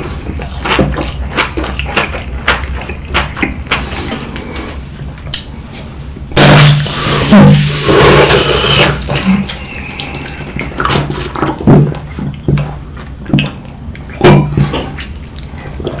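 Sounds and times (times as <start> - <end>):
soda fizzing and foaming: 6.4 - 10.3.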